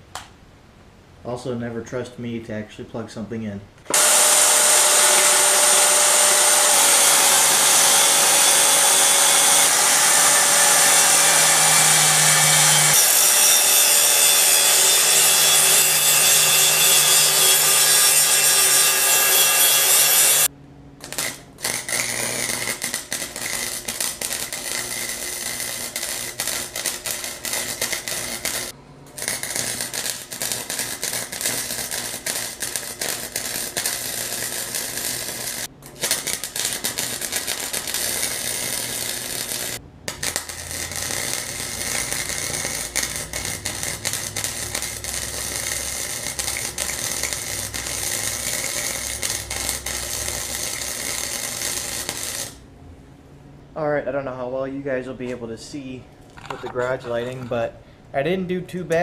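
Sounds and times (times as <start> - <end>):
welder crackling: 3.8 - 52.6
angle grinder cutting steel: 3.9 - 52.6.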